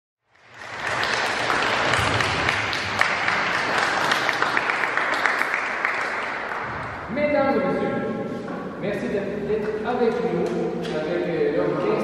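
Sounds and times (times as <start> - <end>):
audience applauding: 0.3 - 7.0.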